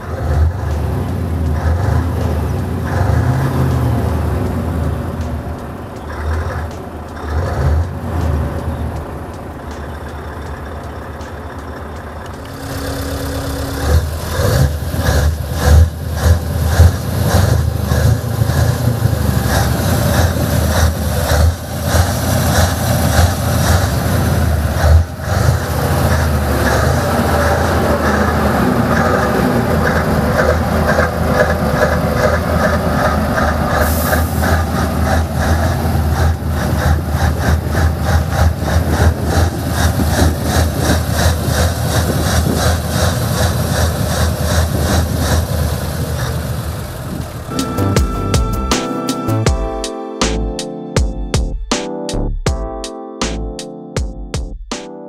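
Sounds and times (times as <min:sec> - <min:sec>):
diesel engine idling: 0:00.0 - 0:49.6.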